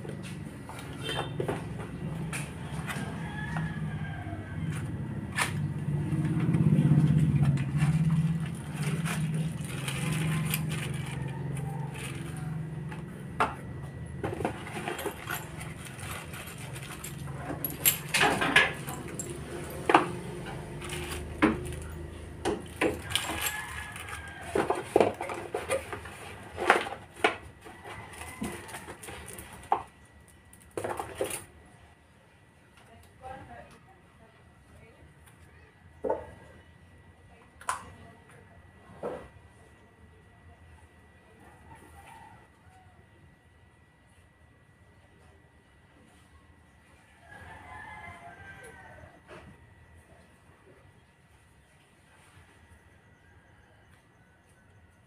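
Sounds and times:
plastic bag crinkling: 8.0s - 12.7s, 14.6s - 17.7s
metal parts clicking and knocking: 14.4s - 26.0s.

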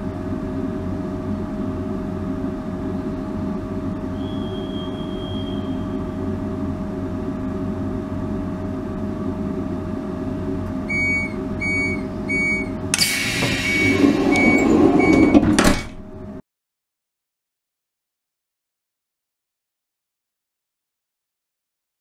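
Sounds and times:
steady coach hum: 10.3s - 16.4s
door warning beeps: 10.9s - 15.9s
bus door mechanism rushing: 11.6s - 16.4s.

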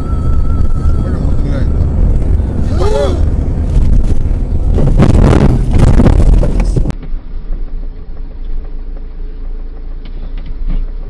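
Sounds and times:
car driving hum: 0.0s - 11.0s
rough vehicle noise with knocks: 3.2s - 11.0s.

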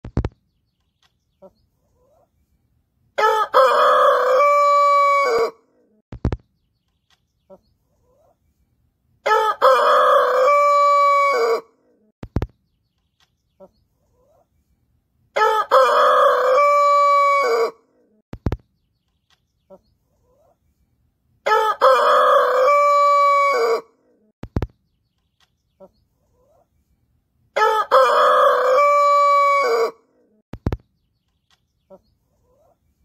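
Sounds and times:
rooster crowing: 3.2s - 5.6s, 9.2s - 11.7s, 15.4s - 17.8s, 21.5s - 23.9s, 27.6s - 30.0s.

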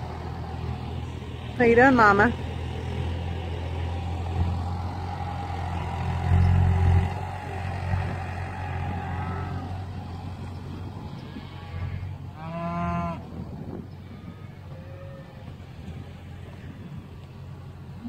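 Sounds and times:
tractor engine running: 0.0s - 12.4s, 13.2s - 18.0s
cow mooing: 5.6s - 10.0s, 11.0s - 13.3s, 14.0s - 15.6s.

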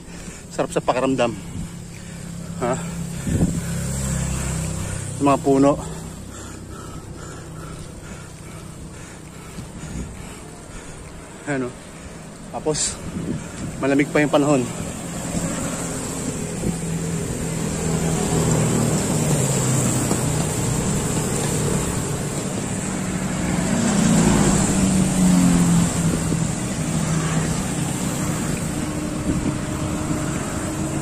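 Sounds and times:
truck engine drone: 0.0s - 31.0s.

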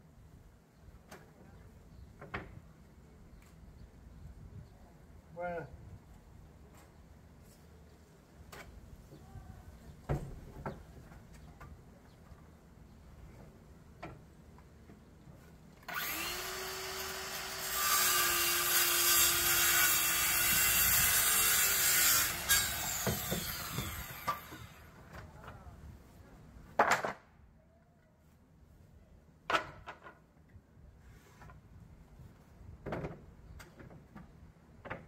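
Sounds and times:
circular saw cutting wood: 15.9s - 25.0s.

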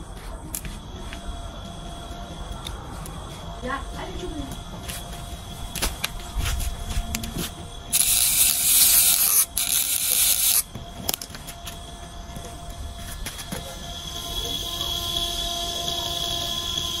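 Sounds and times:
scissor blade scraping motor shaft: 7.1s - 11.2s, 13.5s - 17.0s.

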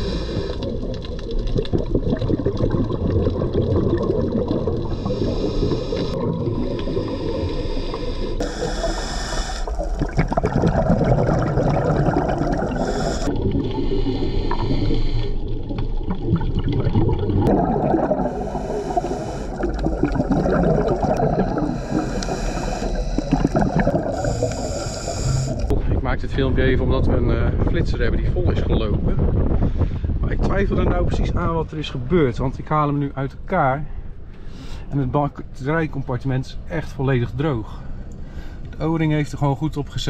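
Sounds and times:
scuba regulator breathing: 0.0s - 1.0s, 4.8s - 10.1s, 12.1s - 15.7s, 17.8s - 25.7s
bubbly exhalations: 0.0s - 25.7s
underwater wash: 0.0s - 25.8s.

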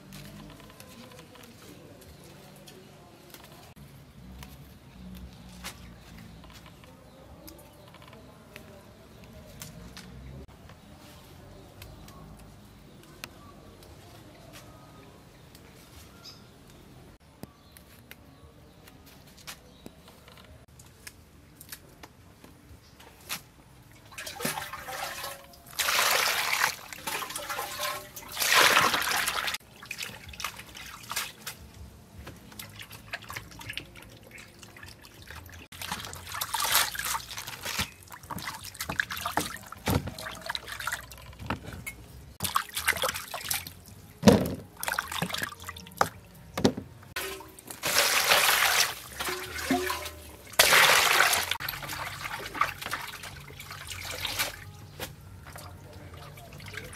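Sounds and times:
water splashing in a plastic basin: 23.9s - 41.6s, 42.4s - 54.8s, 55.4s - 56.9s.

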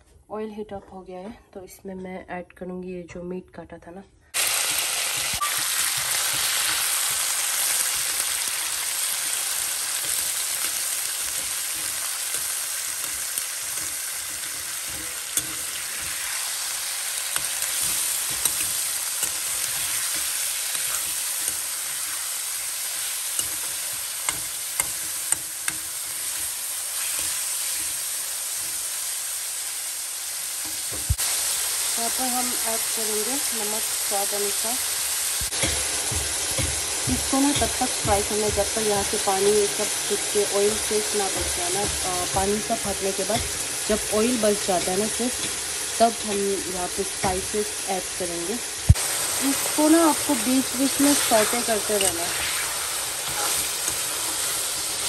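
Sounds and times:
meat sizzling in hot oil: 4.4s - 55.0s
metal spatula scraping pan: 9.3s - 28.0s, 50.4s - 55.0s.

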